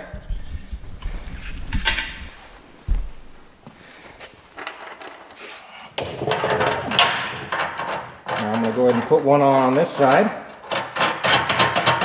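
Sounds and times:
low thumps and clicks: 0.0s - 3.5s
scuffing and cloth rustling: 0.0s - 4.5s.

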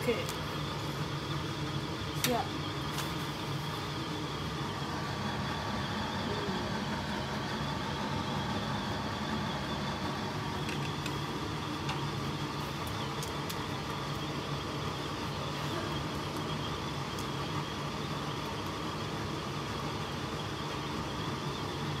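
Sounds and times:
soup boiling: 9.1s - 21.8s.

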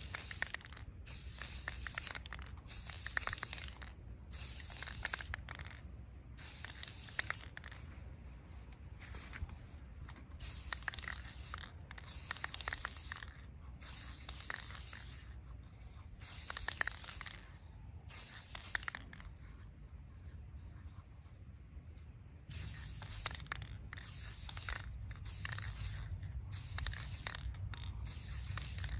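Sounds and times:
aerosol spray can hissing: 0.0s - 5.8s, 6.4s - 7.7s, 10.4s - 15.3s, 16.2s - 17.5s, 18.1s - 19.1s, 22.5s - 28.9s.

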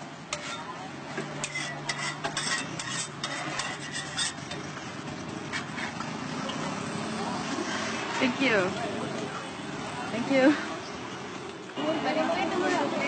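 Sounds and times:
metal spatula scraping griddle: 0.3s - 6.4s, 7.4s - 8.7s.

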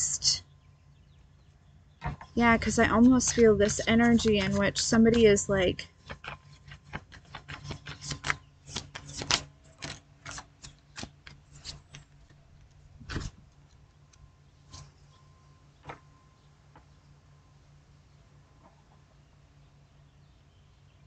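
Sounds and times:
cards being shuffled: 2.0s - 13.4s.

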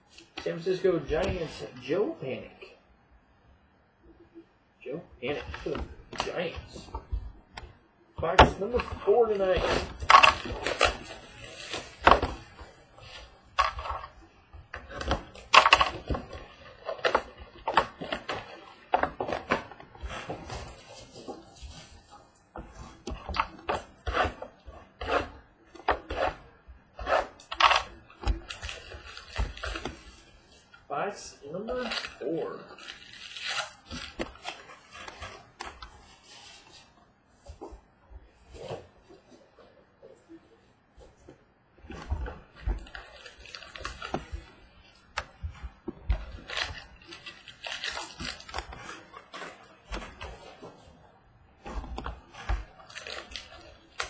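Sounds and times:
cardboard scraping and rustling: 8.2s - 30.7s, 31.6s - 54.0s
foil wrapper crinkling and tearing: 8.6s - 14.1s, 31.7s - 35.2s, 42.8s - 44.6s, 46.3s - 50.5s, 52.6s - 54.0s.

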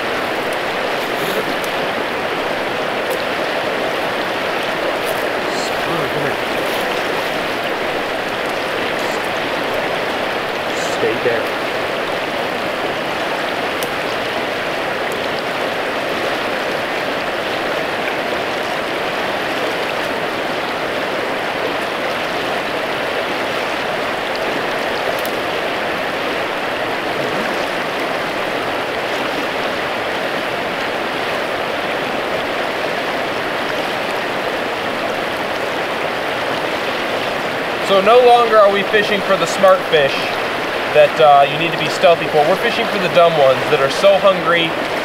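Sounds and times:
river water rushing: 0.0s - 45.0s.

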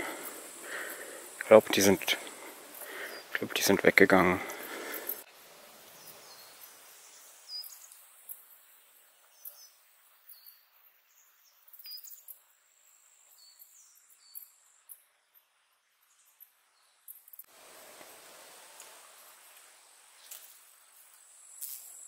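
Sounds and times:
small birds chirping: 0.0s - 5.3s, 5.9s - 12.5s, 13.2s - 17.5s
insects chirping: 0.0s - 22.0s.

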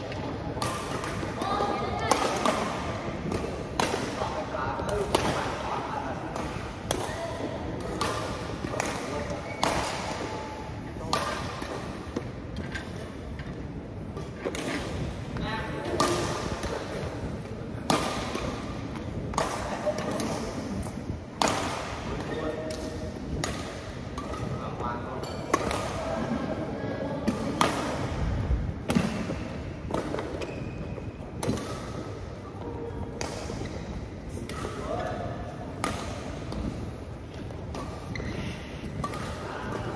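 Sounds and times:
rackets striking shuttlecock: 0.1s - 5.6s, 6.2s - 12.7s, 15.8s - 26.4s, 27.2s - 28.2s, 28.8s - 32.4s, 33.1s - 38.3s, 38.9s - 39.9s.

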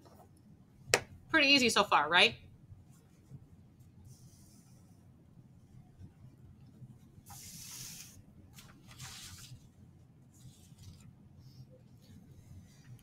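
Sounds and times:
faint low hum: 0.0s - 13.0s
papery swishes of notebook sliding: 7.3s - 9.7s, 10.3s - 13.0s.

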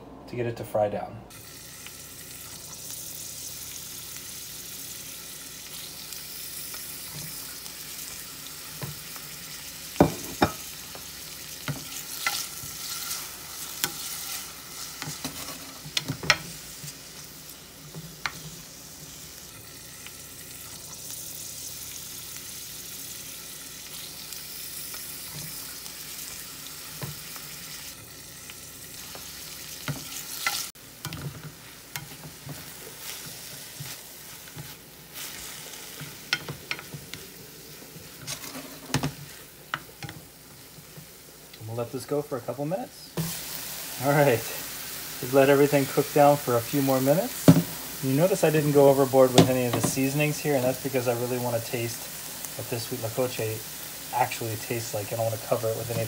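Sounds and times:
vegetables sizzling in oil: 1.3s - 56.0s
spatula knocking and scraping pan: 10.0s - 17.0s, 35.9s - 37.2s, 47.4s - 47.8s.

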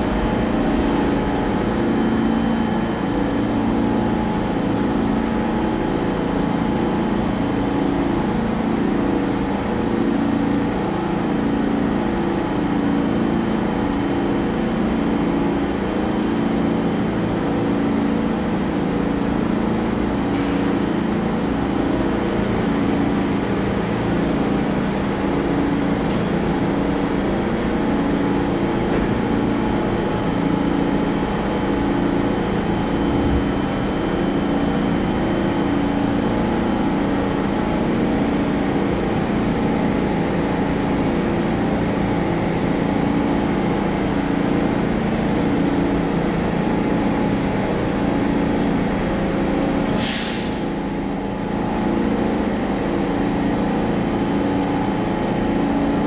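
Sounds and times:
pulsing mechanical hum: 0.0s - 50.0s
compressed air hiss: 50.0s - 50.7s.

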